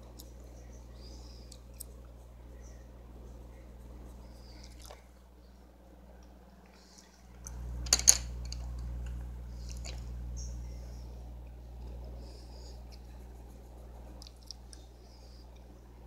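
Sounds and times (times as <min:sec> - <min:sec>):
low steady hum: 0:00.0 - 0:16.0
pencil scratching paper: 0:12.6 - 0:14.2.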